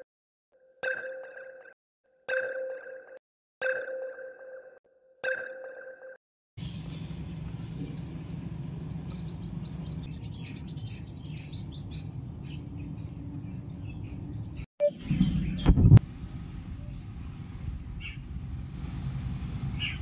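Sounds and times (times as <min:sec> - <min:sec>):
small birds chirping: 0:06.6 - 0:16.0, 0:17.9 - 0:20.0
low background rumble: 0:06.6 - 0:20.0.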